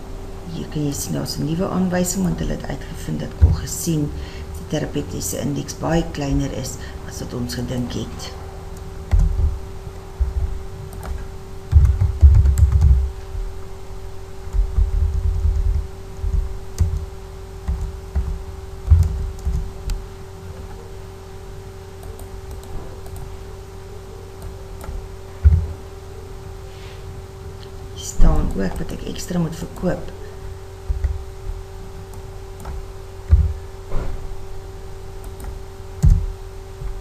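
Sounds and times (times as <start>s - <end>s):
steady hum: 0.0s - 37.0s
typing on a keyboard: 10.9s - 13.0s.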